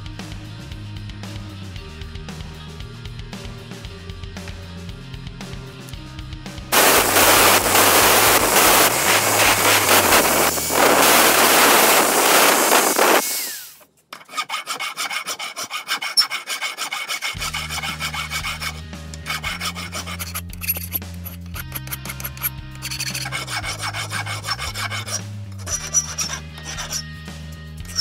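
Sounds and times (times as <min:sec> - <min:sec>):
angle grinder grinding steel: 0:06.7 - 0:27.2, 0:27.8 - 0:28.0
file rasping on steel: 0:06.8 - 0:27.1.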